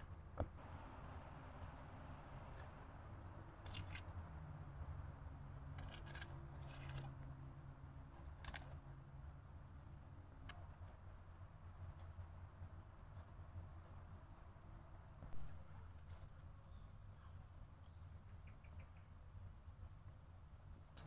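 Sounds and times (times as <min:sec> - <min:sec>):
knife scraping garlic skins: 0:05.8 - 0:07.1.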